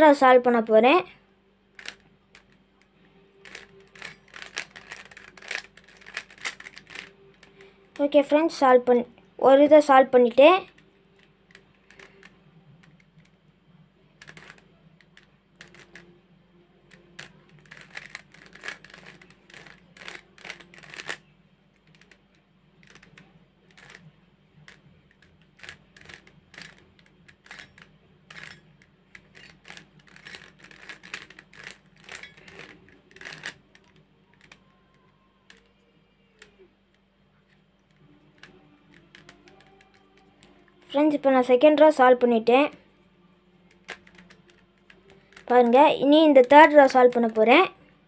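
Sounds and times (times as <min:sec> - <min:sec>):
puzzle cube clicking: 0:01.8 - 0:02.6, 0:03.4 - 0:08.1, 0:10.6 - 0:13.4, 0:14.2 - 0:16.0, 0:16.9 - 0:21.2, 0:21.8 - 0:28.5, 0:29.1 - 0:35.6, 0:37.5 - 0:40.5, 0:43.7 - 0:47.5.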